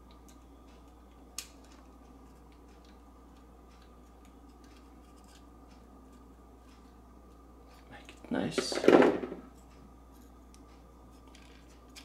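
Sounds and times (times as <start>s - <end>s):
steady low hum: 0.0s - 12.0s
clicks of small parts being handled: 10.5s - 12.0s.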